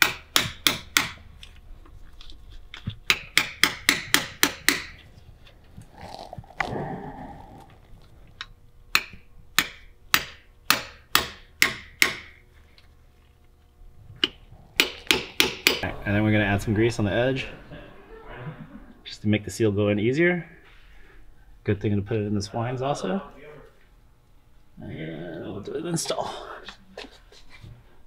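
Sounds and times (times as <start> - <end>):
hammer tapping on metal: 3.1 - 5.0, 8.9 - 12.4, 14.2 - 15.8.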